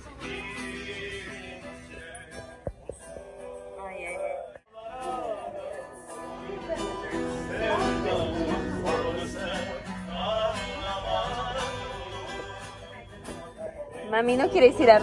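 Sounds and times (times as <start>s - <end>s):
guitar strumming: 0.0s - 15.0s
person singing: 4.1s - 15.0s.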